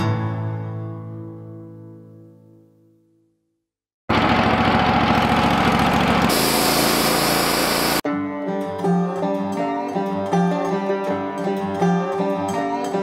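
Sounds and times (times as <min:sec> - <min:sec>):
band sawmill running: 0:04.1 - 0:08.0
banjo and guitar music: 0:08.1 - 0:13.0.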